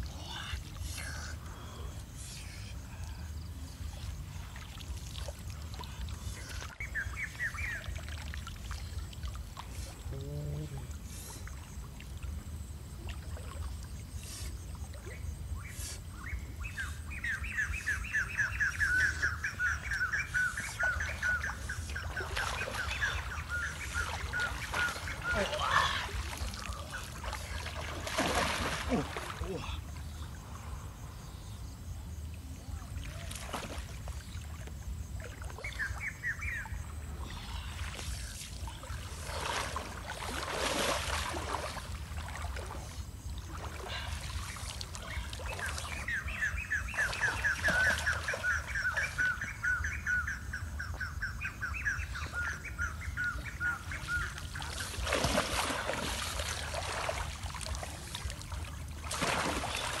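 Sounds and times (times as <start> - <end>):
river water splashing: 0.2 - 31.5, 32.1 - 60.0
bird chirp: 6.2 - 9.0, 15.0 - 27.7, 35.5 - 39.6, 44.0 - 55.8.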